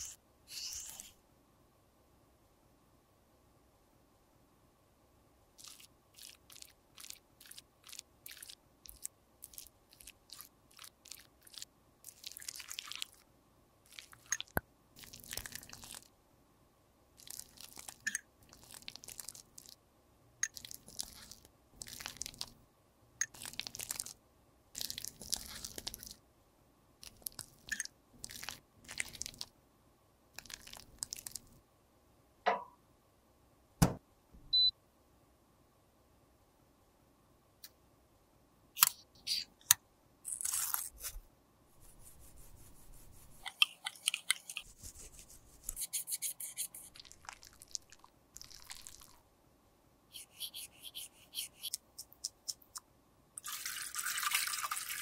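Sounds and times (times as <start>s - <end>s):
crunching and scraping cosmetics: 5.6s - 13.3s, 13.9s - 16.1s, 17.2s - 19.8s, 20.4s - 22.6s, 23.2s - 24.2s, 24.8s - 26.2s, 27.0s - 29.5s, 30.4s - 31.6s, 40.3s - 49.2s, 50.2s - 55.0s.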